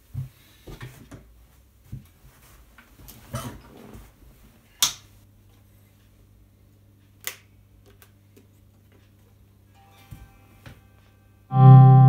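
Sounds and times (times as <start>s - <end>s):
amplifier low hum: 11.5s - 12.0s.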